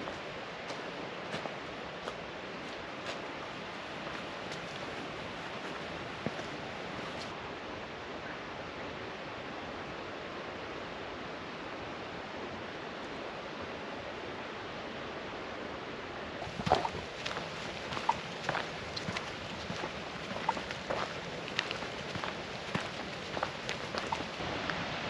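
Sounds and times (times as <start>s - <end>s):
footsteps on leafy gravel trail: 0.0s - 7.3s, 16.4s - 24.4s
distant falling water rushing: 16.4s - 25.0s.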